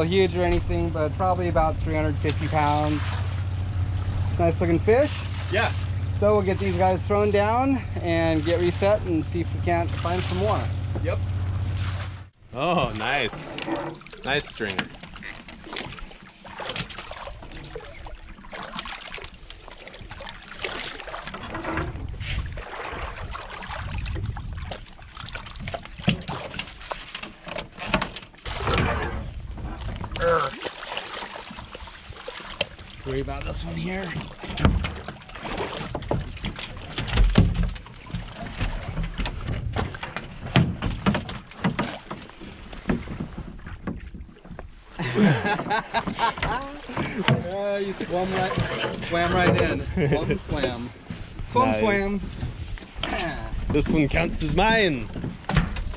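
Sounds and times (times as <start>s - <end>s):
low steady rumble: 0.0s - 14.7s, 44.6s - 55.1s
water sloshing against hull: 0.0s - 55.9s
fish splashing: 13.2s - 27.5s, 29.8s - 33.0s, 33.8s - 42.9s.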